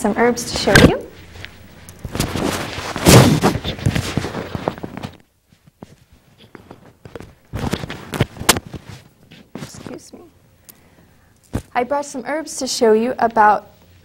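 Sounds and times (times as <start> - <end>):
rustling: 0.6 - 10.2
knocks and bumps: 0.7 - 5.2.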